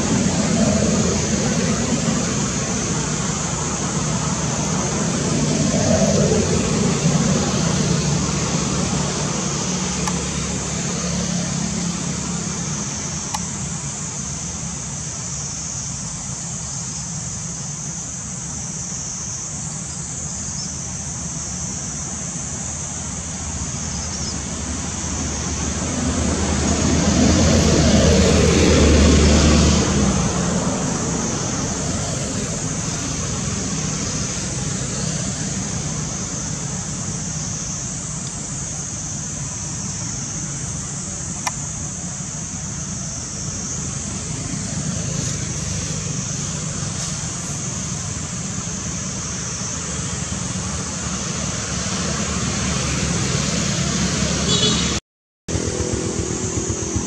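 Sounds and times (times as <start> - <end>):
motor vehicle passing: 0.0 - 13.3, 24.0 - 37.9, 42.9 - 57.0
distant road traffic: 0.0 - 57.0.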